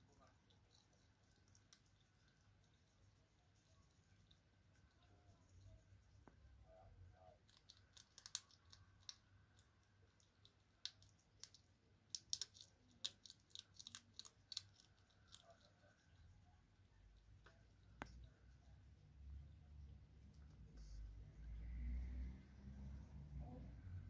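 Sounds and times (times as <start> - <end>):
hedgehog crunching kibble: 0.0 - 5.8, 7.3 - 16.4.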